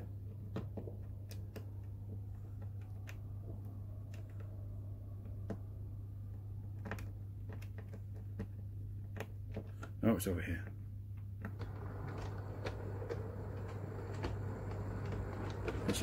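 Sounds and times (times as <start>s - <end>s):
transformer humming: 11.6s - 16.0s.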